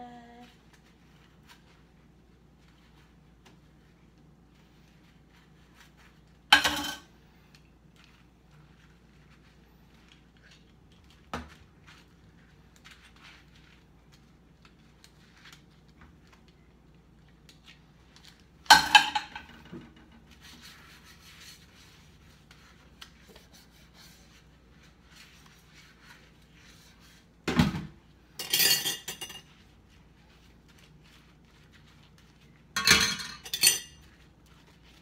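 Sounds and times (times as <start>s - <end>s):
dishes rubbing and clinking: 4.5s - 7.3s, 18.6s - 27.3s, 28.2s - 35.0s
dishes clattering: 6.5s - 7.1s, 18.7s - 20.0s, 28.4s - 29.5s, 32.8s - 34.0s.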